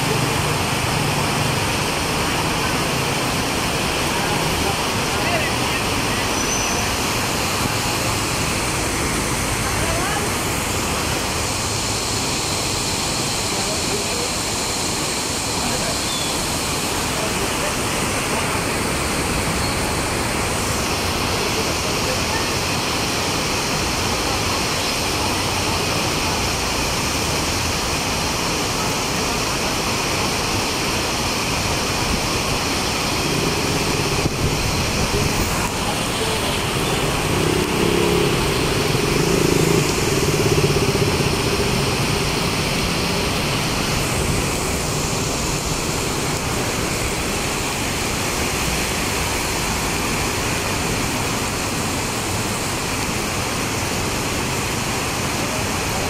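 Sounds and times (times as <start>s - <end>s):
heavy rain on a wet street: 0.0s - 56.0s
passing vehicle engine hum: 31.0s - 52.6s.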